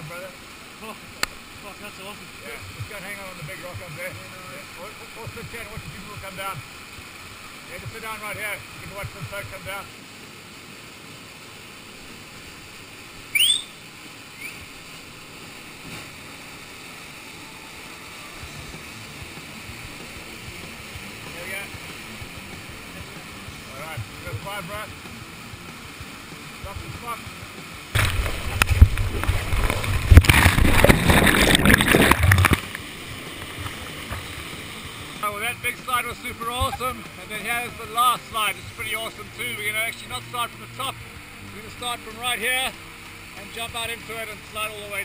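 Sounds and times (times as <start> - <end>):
waterfall rushing: 0.0 - 45.0
rising whistle: 13.3 - 13.8.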